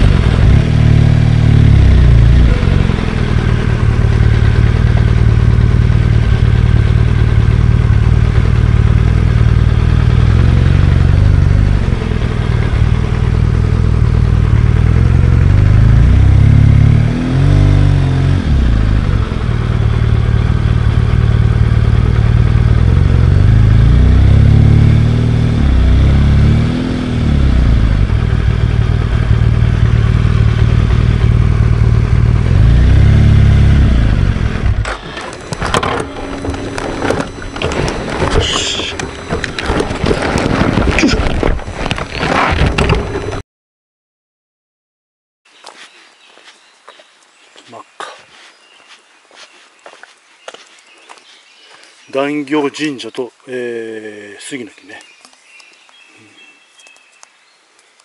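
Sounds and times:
motorcycle engine rumble: 0.0s - 43.4s.

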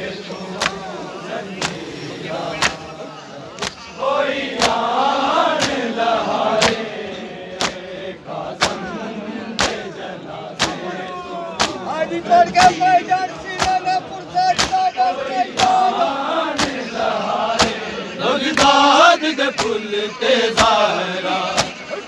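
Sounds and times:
crowd voices: 0.0s - 22.0s
chest beating slaps: 0.6s - 0.9s, 1.6s - 1.9s, 2.5s - 2.9s, 4.5s - 4.9s, 5.5s - 5.9s, 6.6s - 6.9s, 7.6s - 7.9s, 8.6s - 9.0s, 9.6s - 9.9s, 10.6s - 10.9s, 11.5s - 11.9s, 14.5s - 15.9s, 16.6s - 16.9s, 17.6s - 17.9s, 19.5s - 19.8s, 20.6s - 20.8s, 21.6s - 21.9s.

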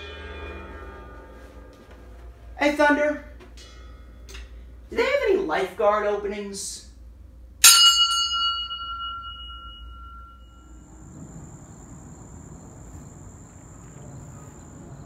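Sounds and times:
cymbal struck and ringing: 0.0s - 5.0s, 7.6s - 11.0s
faint outdoor background noise: 0.0s - 15.0s
high insect drone: 10.4s - 15.0s.

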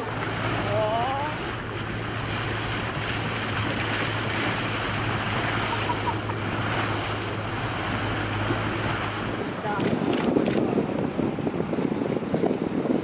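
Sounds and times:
water washing around boat: 0.0s - 13.0s
wind on microphone: 0.0s - 13.0s.

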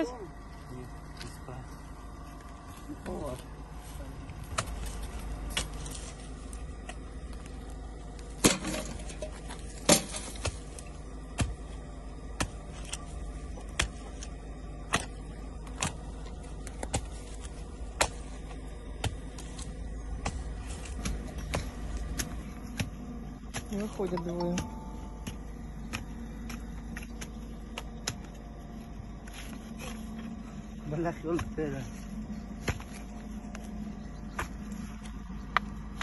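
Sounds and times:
low steady rumble: 0.0s - 36.0s.

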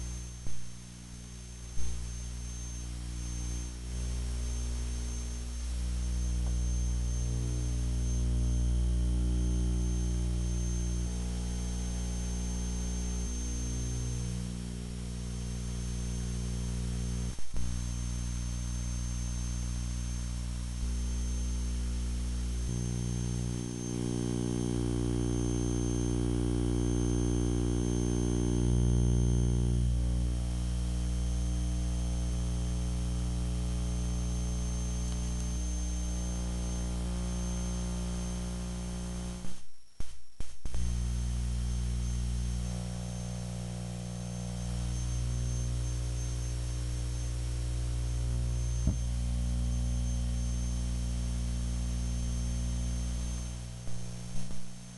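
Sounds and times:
low electrical hum: 0.0s - 54.9s
click: 6.4s - 6.6s, 17.3s - 17.8s, 35.1s - 35.6s, 39.4s - 40.9s, 48.8s - 49.1s.

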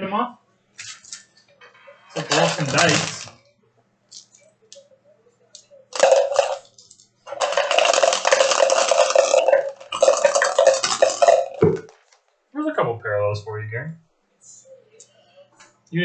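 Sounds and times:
cards rustling and clattering: 0.8s - 1.3s, 2.2s - 3.4s, 6.0s - 12.2s.

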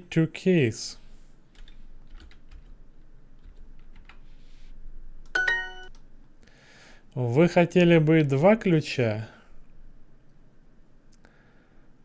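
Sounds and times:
keyboard typing clicks: 5.2s - 6.1s.

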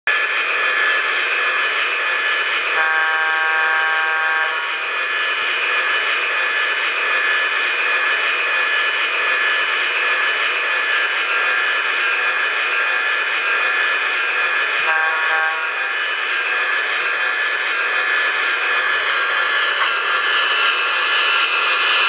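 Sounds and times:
turbine locomotive whine: 0.1s - 22.0s
locomotive horn blast: 2.7s - 4.7s, 14.8s - 15.7s.

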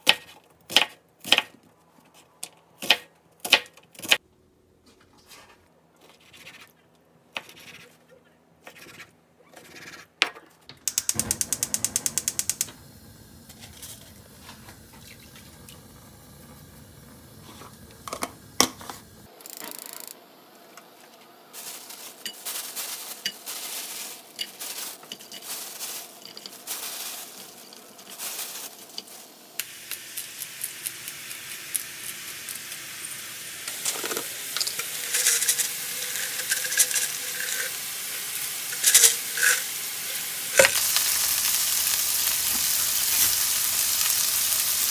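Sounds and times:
food sizzling in frying pan: 21.6s - 44.9s
utensils clinking: 21.9s - 29.1s, 33.7s - 37.9s, 38.7s - 39.7s.

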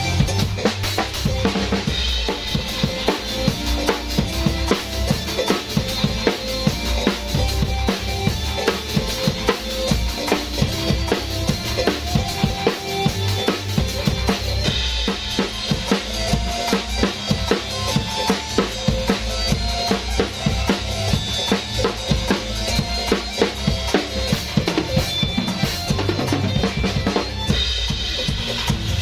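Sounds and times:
backing track with bass: 0.0s - 29.0s
drum kit playing a beat: 0.0s - 29.0s.

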